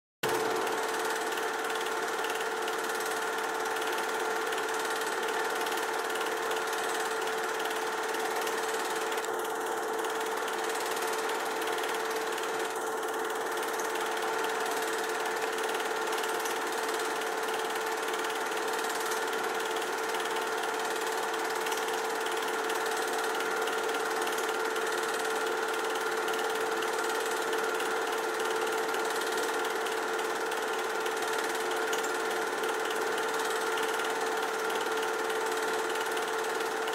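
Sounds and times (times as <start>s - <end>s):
film projector clatter: 0.2s - 36.9s
projector hum: 5.6s - 14.3s.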